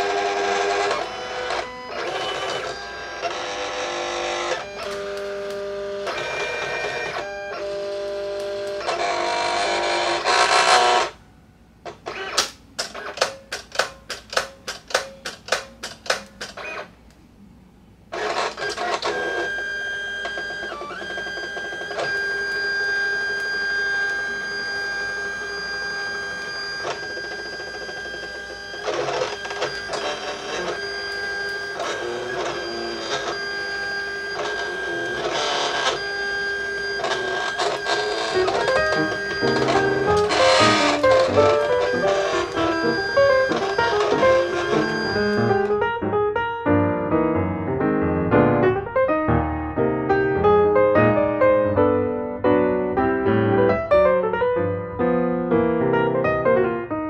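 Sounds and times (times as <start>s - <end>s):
cutting machine clicking: 0.0s - 11.0s, 18.2s - 45.8s
cutting machine motor whine: 0.0s - 11.2s, 18.1s - 45.9s.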